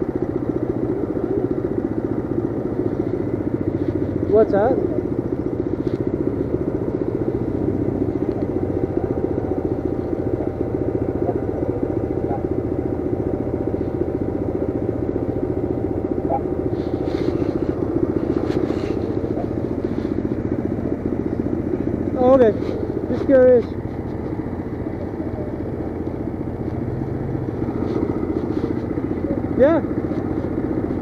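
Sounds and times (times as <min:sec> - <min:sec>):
atv engine running: 0:00.0 - 0:31.0
mini bike engine running: 0:00.0 - 0:31.0.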